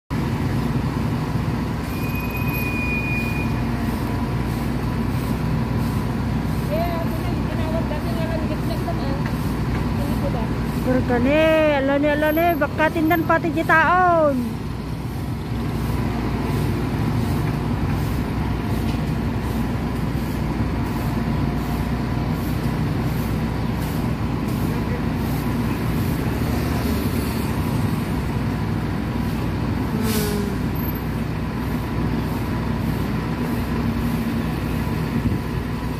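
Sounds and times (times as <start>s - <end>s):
diesel engine humming: 0.1s - 35.9s
thin high tone: 1.8s - 3.7s.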